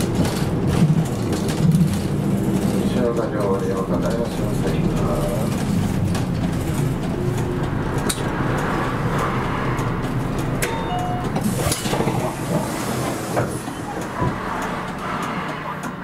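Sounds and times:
bus body rattling and clicking: 0.0s - 16.0s
bus engine low rumble: 0.0s - 16.0s
short electronic beeps: 10.7s - 11.4s.

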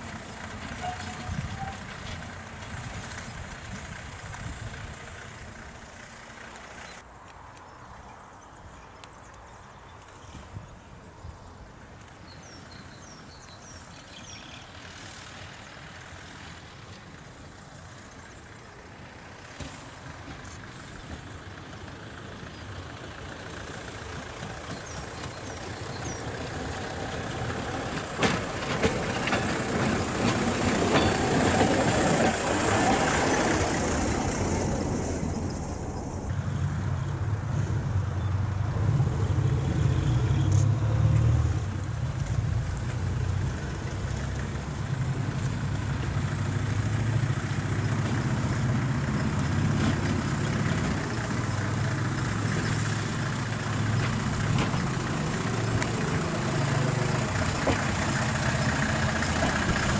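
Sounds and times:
wheels clicking over rail joints: 0.0s - 7.4s, 11.9s - 36.3s, 40.4s - 59.9s
rail vehicle engine: 0.0s - 59.9s
rails hissing: 15.5s - 36.3s.

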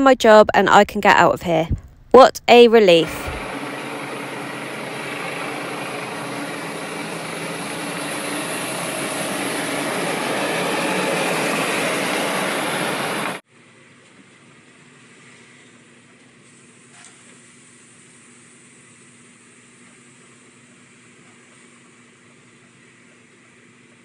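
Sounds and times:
lorry engine running: 2.6s - 13.4s.

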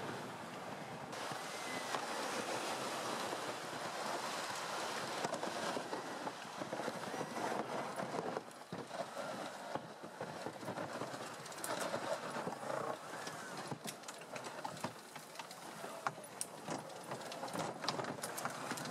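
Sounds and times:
rubber tracks crunching over snow: 1.6s - 18.9s.

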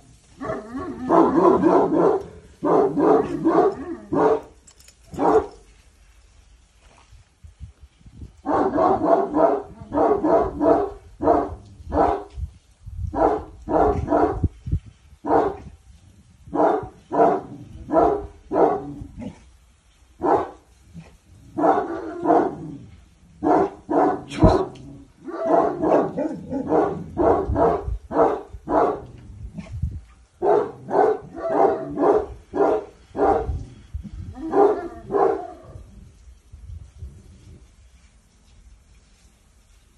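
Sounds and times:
dog barking deeply: 0.4s - 4.5s, 5.2s - 5.5s, 8.4s - 12.3s, 13.1s - 14.5s, 15.2s - 15.7s, 16.5s - 19.4s, 20.2s - 20.6s, 21.5s - 22.8s, 23.4s - 29.8s, 30.4s - 33.7s, 34.3s - 35.9s.

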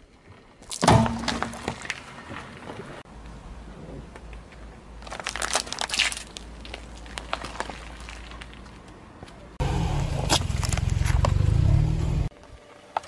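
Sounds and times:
car rolling rumble: 6.4s - 12.3s.

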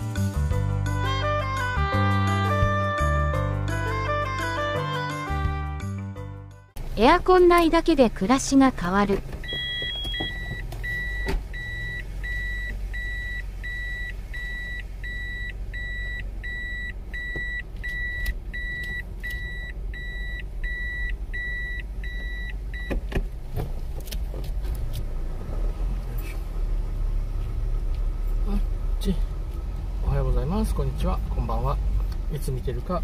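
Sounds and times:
car engine running: 6.8s - 33.0s
reverse warning beeper: 9.4s - 23.0s.

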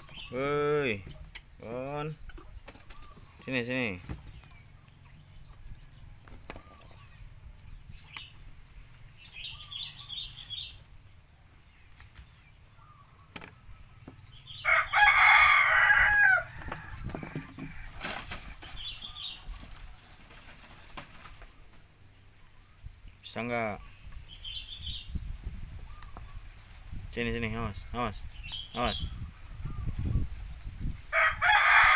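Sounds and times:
rooster crowing: 14.6s - 17.4s, 31.1s - 31.9s.

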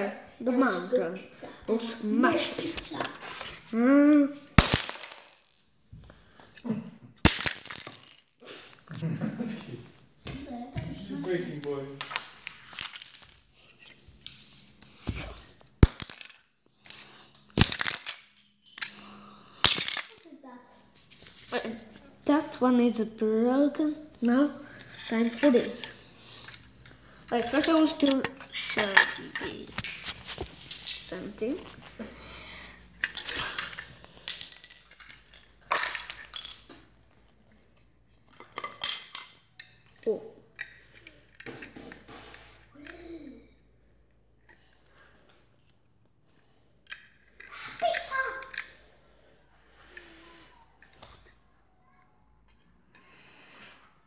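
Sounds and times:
plastic bricks clattering on floor: 4.6s - 5.7s, 7.2s - 8.4s, 11.7s - 20.4s, 24.8s - 32.0s, 32.9s - 36.9s.

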